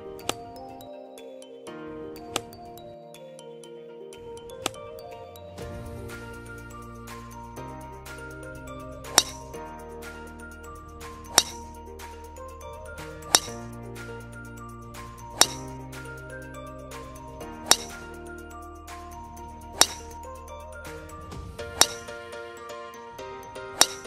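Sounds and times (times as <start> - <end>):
music with sustained chords: 0.0 - 24.0
sharp clinking hit: 5.6 - 9.6, 11.0 - 11.8, 13.0 - 13.8, 15.0 - 16.0, 17.6 - 18.2, 19.7 - 22.2, 23.7 - 24.0.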